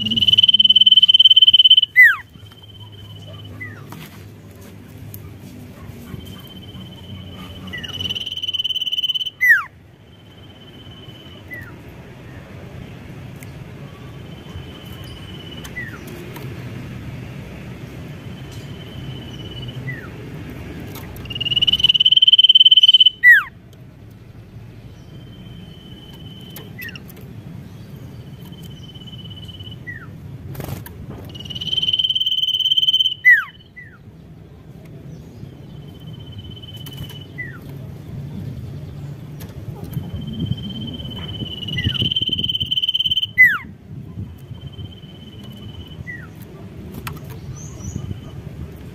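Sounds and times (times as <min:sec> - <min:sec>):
bird singing high calls: 0:00.0 - 0:03.9, 0:06.1 - 0:11.9, 0:13.8 - 0:16.2, 0:18.2 - 0:20.2, 0:20.9 - 0:23.6, 0:24.9 - 0:30.2, 0:31.2 - 0:34.1, 0:35.0 - 0:37.8, 0:38.6 - 0:43.7, 0:44.3 - 0:48.4.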